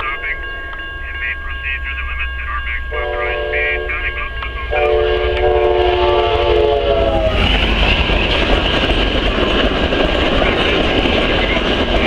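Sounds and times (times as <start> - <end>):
train wheels rushing on rails: 0.0 - 12.0
train horn chord: 0.8 - 7.4.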